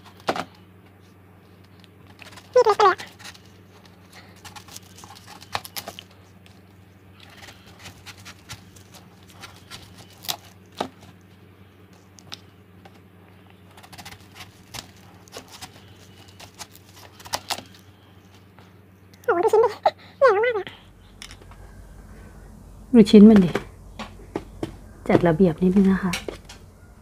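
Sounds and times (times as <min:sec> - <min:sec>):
low hum: 0:20.4 - 0:27.0.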